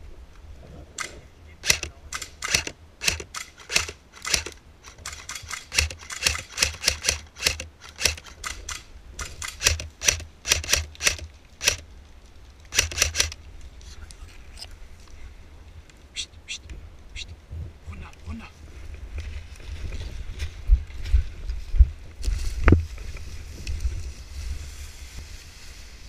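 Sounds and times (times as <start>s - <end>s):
airsoft rifle shots clicking: 1.0s - 11.8s, 12.7s - 13.4s.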